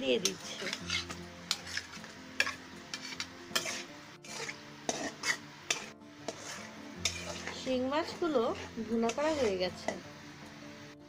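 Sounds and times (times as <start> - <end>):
fish sizzling in oil: 0.0 - 11.0
spatula scraping a pan: 0.2 - 10.0.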